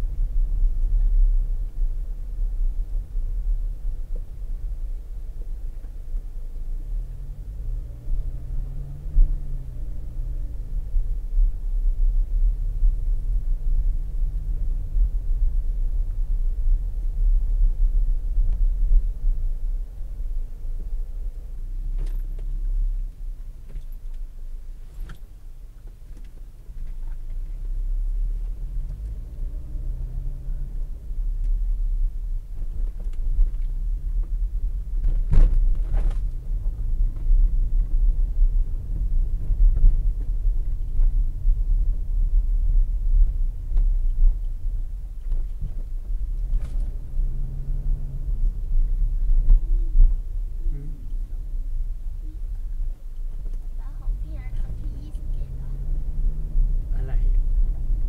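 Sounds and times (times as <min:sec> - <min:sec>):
car engine rumble: 0:00.0 - 0:58.0
tyres driving slowly: 0:00.0 - 0:58.0
knocks from bumps or rattles: 0:35.0 - 0:37.9.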